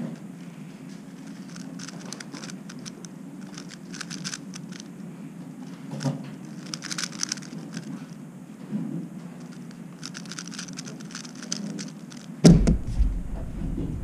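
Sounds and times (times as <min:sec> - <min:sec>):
puzzle cube plastic clicking: 0:01.1 - 0:05.0, 0:05.9 - 0:08.2, 0:09.4 - 0:12.5.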